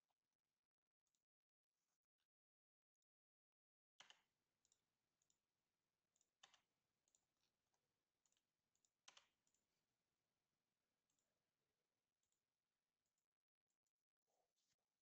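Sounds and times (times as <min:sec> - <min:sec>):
computer mouse clicks: 0:04.0 - 0:05.4, 0:06.1 - 0:07.5, 0:08.2 - 0:09.7.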